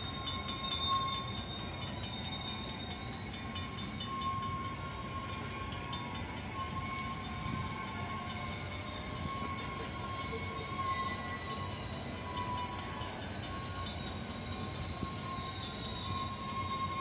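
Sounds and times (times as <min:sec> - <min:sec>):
wheels squealing against rail: 0:00.0 - 0:17.0.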